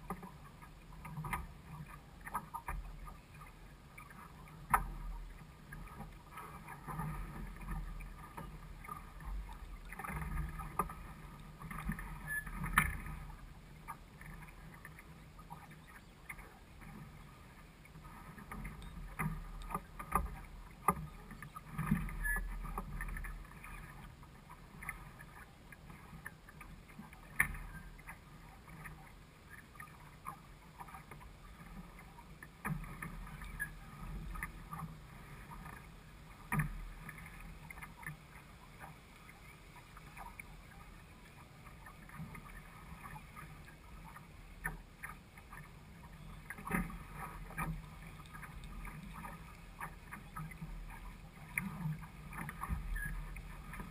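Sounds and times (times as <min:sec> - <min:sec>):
boat knocks and clicks: 0:05.7 - 0:17.1, 0:17.9 - 0:24.0.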